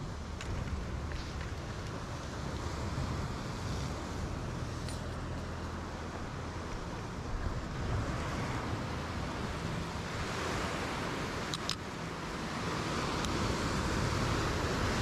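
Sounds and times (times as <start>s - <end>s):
surf washing on rocks: 0.0s - 15.0s.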